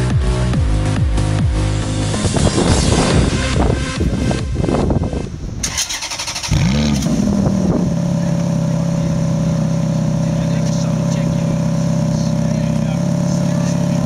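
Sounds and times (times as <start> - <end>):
electronic dance music: 0.0 - 5.4
car engine starting and idling: 0.0 - 14.0.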